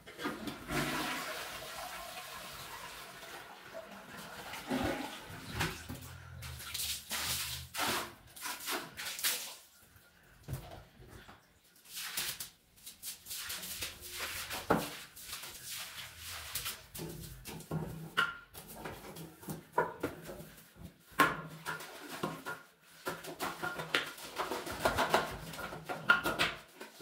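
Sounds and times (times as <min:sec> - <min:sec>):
brush scrubbing wet tiled floor: 0:00.2 - 0:10.0, 0:11.1 - 0:27.0
water splashing on tiles: 0:04.1 - 0:09.8, 0:11.7 - 0:20.6, 0:21.2 - 0:26.8.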